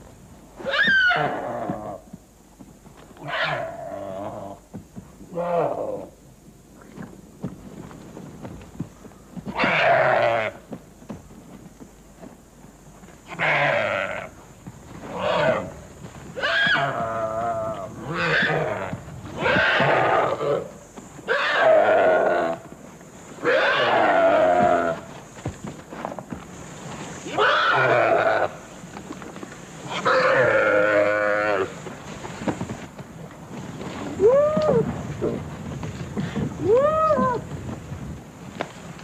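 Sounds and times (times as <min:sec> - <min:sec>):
animal screaming in distress: 0:16.4 - 0:20.6, 0:21.3 - 0:22.5, 0:23.4 - 0:25.0, 0:27.3 - 0:28.5.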